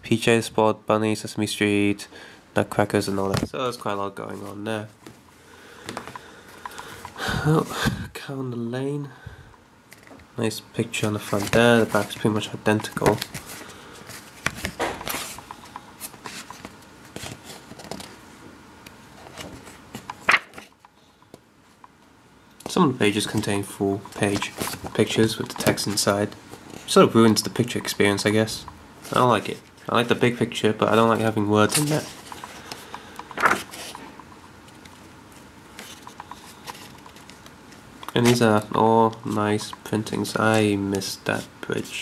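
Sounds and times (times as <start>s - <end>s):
paper book rustling: 10.9s - 18.2s, 19.2s - 20.8s, 23.0s - 28.4s, 29.0s - 41.9s.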